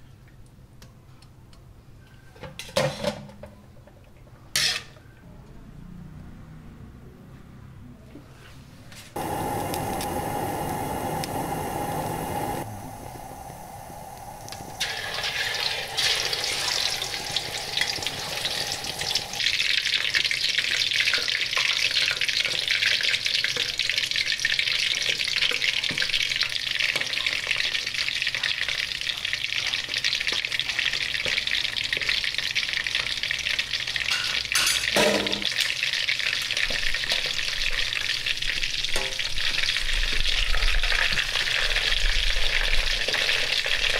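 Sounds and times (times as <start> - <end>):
duck sizzling in hot oil: 9.2 - 43.9
oil pouring into a wok: 14.7 - 28.9.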